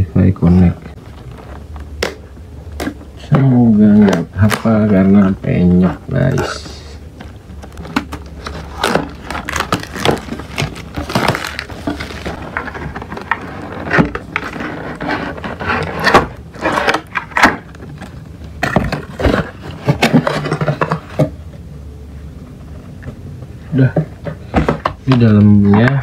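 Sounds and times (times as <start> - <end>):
plastic wrap crinkling and tearing: 7.6 - 18.2
cardboard box scraping: 7.8 - 18.0.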